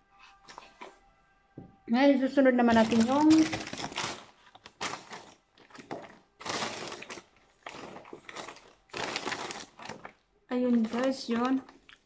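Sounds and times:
paper bag crinkling and rustling: 0:02.6 - 0:12.0.

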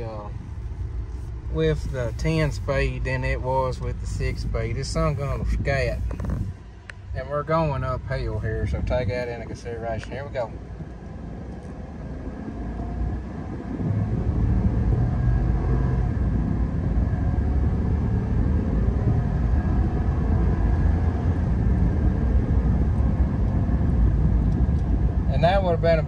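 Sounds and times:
truck engine accelerating hard: 0:11.1 - 0:26.0.

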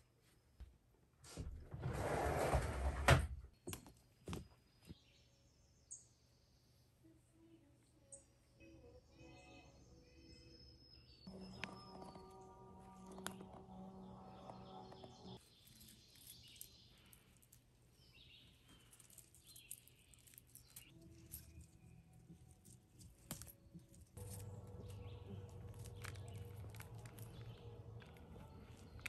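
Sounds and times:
low steady hum: 0:06.3 - 0:29.0
small birds chirping: 0:08.0 - 0:23.0, 0:23.8 - 0:29.0.

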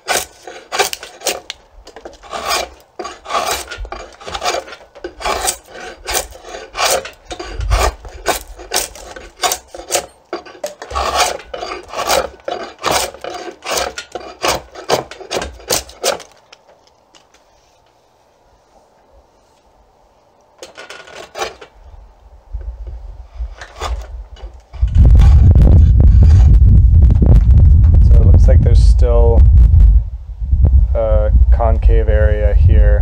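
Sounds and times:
draw knife rasping wood: 0:00.0 - 0:16.3, 0:23.5 - 0:26.5.

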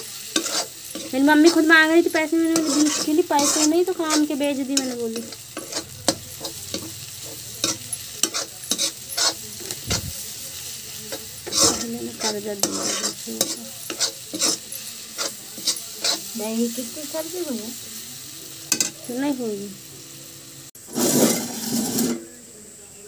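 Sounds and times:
vegetables sizzling in a wok: 0:00.0 - 0:23.0
spatula scraping and clicking on pan: 0:00.3 - 0:10.0, 0:11.1 - 0:16.4, 0:20.9 - 0:22.2.

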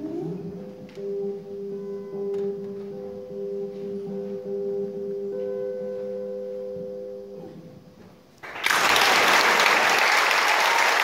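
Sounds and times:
audience applause: 0:08.4 - 0:11.0.

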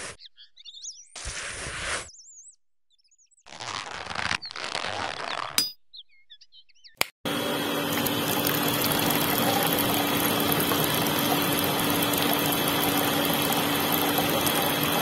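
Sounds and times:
small electric motor hum: 0:07.3 - 0:15.0
water streaming into bucket: 0:07.8 - 0:15.0.

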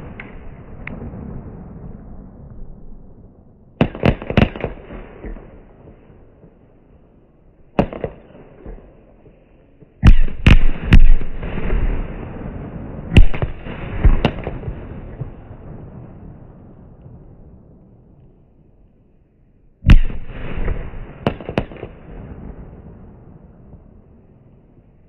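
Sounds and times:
rolling echo and crackle: 0:00.0 - 0:25.0
fireworks bangs: 0:07.8 - 0:17.5, 0:19.9 - 0:24.0.

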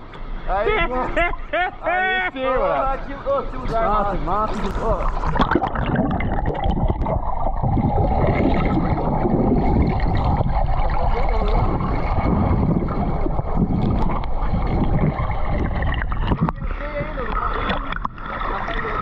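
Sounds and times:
underwater rush of water: 0:04.5 - 0:19.0
bubbling underwater: 0:04.7 - 0:19.0.

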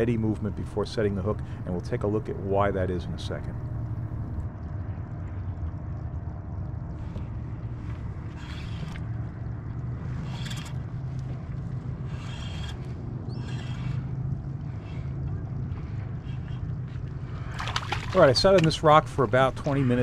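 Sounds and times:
kayak on water rumble: 0:00.0 - 0:20.0
fishing gear scraping: 0:08.3 - 0:09.1, 0:10.1 - 0:10.9, 0:12.0 - 0:14.2.

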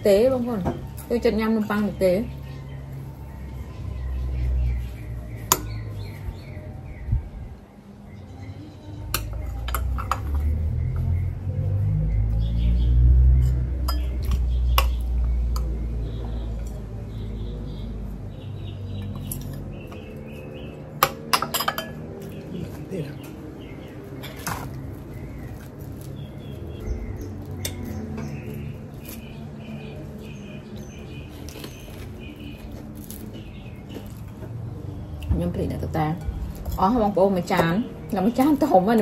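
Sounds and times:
birds chirping: 0:00.0 - 0:39.0
spoon and dishes clinking: 0:09.1 - 0:10.6, 0:21.0 - 0:22.4, 0:24.2 - 0:24.8.

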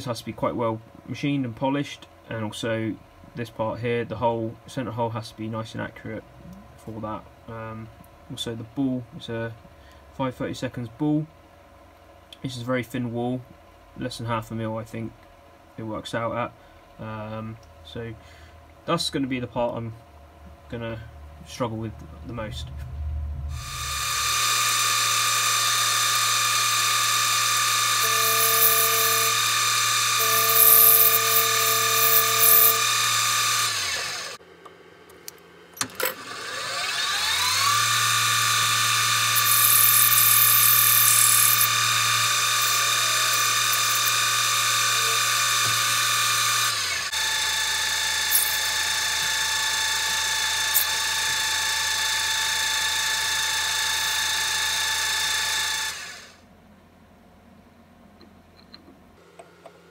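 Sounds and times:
cutting tool hissing on metal: 0:23.5 - 0:34.4, 0:36.2 - 0:49.6
lathe motor whine: 0:23.5 - 0:34.4, 0:35.9 - 0:56.4.

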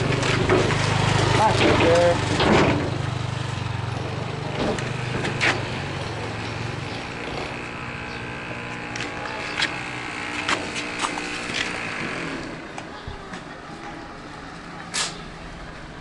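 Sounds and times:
engine running: 0:00.0 - 0:16.0
faint voices: 0:08.6 - 0:15.9.

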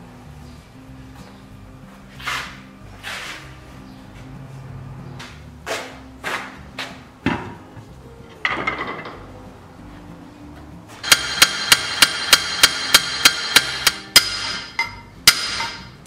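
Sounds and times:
hammer blows on metal hub: 0:11.0 - 0:16.0.

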